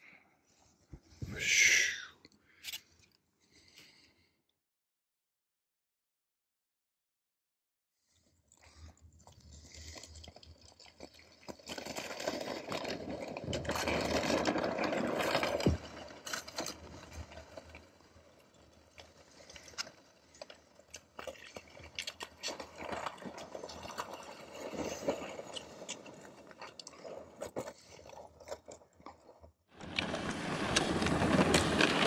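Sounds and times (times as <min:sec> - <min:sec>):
ice skates scraping ice: 0:11.0 - 0:28.6, 0:29.8 - 0:32.0.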